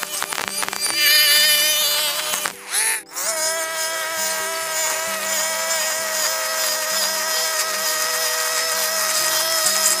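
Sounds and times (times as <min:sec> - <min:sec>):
brush cutter engine whining: 0:00.0 - 0:10.0
nylon line cutting grass: 0:00.0 - 0:10.0
quiet background music: 0:00.0 - 0:10.0.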